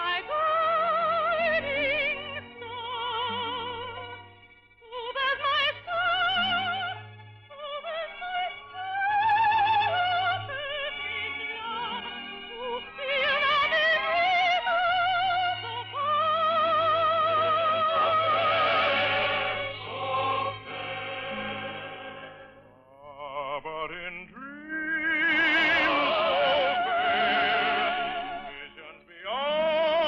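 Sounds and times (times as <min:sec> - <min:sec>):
operatic soprano singing: 0:00.0 - 0:04.2, 0:04.8 - 0:30.0
sustained accompaniment: 0:00.1 - 0:29.3.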